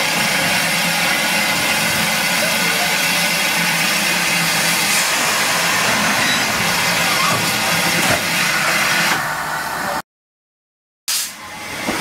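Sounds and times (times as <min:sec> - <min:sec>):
steam locomotive hissing: 0:00.0 - 0:10.0.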